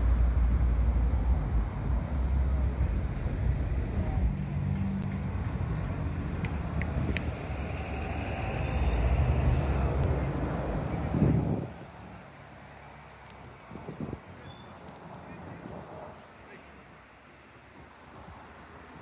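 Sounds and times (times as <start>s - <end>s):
road traffic rumble: 0.0s - 19.0s
faint sharp clicks: 13.2s - 13.9s, 14.8s - 15.3s.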